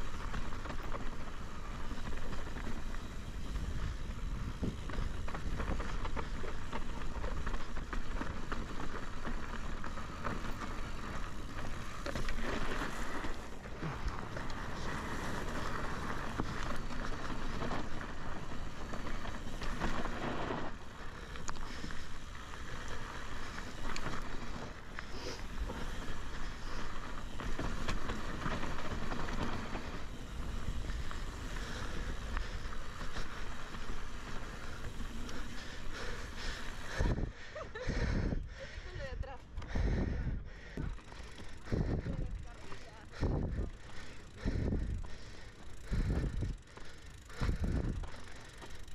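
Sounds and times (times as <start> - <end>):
tyres crunching over gravel: 0.0 - 37.1
bike clicks and rattles: 0.0 - 48.9
wind buffeting microphone: 2.5 - 7.8, 26.8 - 48.2.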